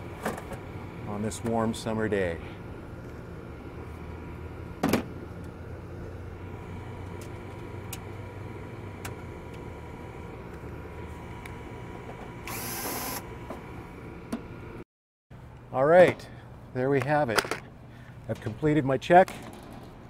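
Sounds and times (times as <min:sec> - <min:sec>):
hvac equipment humming: 0:00.0 - 0:14.8.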